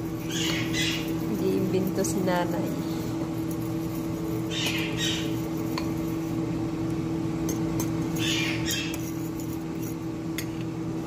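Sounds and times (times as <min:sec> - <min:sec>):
fork scraping flour in bowl: 0:00.0 - 0:06.6, 0:07.8 - 0:10.0
steady low hum: 0:00.0 - 0:11.0
fork clicking against bowl: 0:03.4 - 0:06.1.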